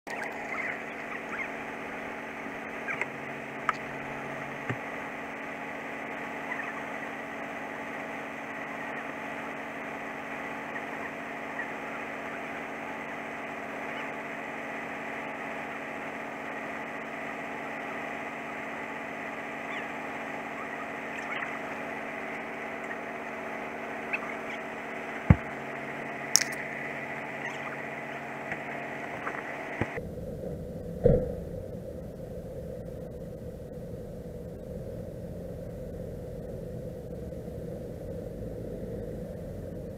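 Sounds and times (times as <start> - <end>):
diesel engine idling: 0.2 - 39.9
sharp knocks and clicks: 26.4 - 26.6.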